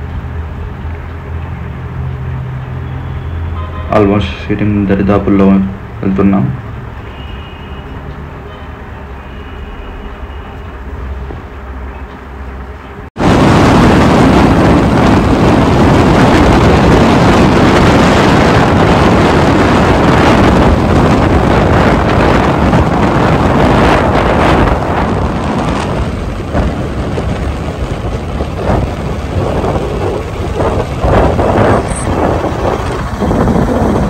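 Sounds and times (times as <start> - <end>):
motorcycle engine and road noise: 0.0 - 34.0
wind buffeting microphone: 13.1 - 34.0.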